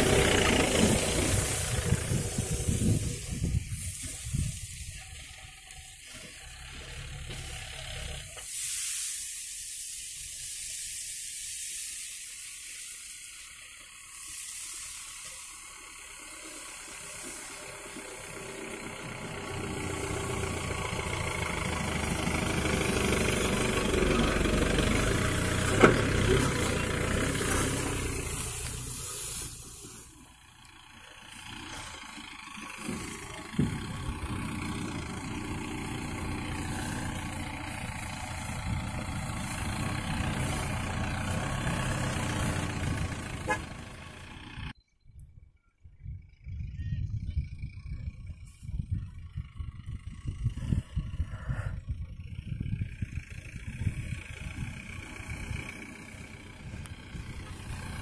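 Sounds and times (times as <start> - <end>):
diesel engine humming: 0.0 - 44.8, 46.1 - 58.0
steady hiss: 8.3 - 18.8, 26.6 - 32.4.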